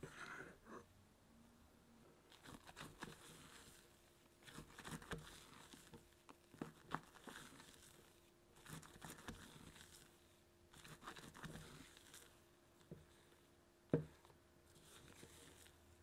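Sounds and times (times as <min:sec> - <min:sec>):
wet batter being turned: 0:02.3 - 0:16.0.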